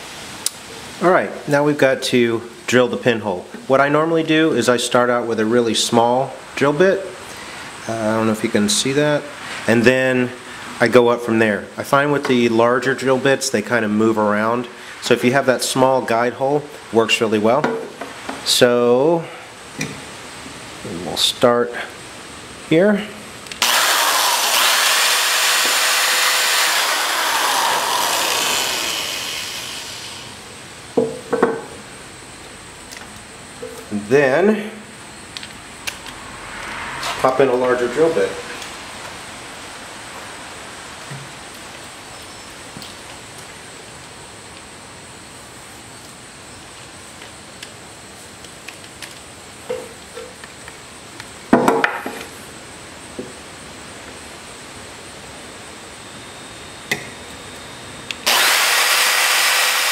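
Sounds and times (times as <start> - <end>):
background hiss: 0.0 - 26.1, 27.6 - 58.3
electric drill boring metal: 23.6 - 30.4, 58.2 - 59.9.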